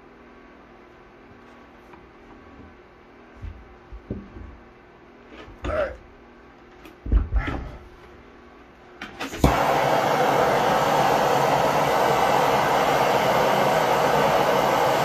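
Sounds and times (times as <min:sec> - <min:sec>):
gas torch hissing: 0:09.2 - 0:15.0.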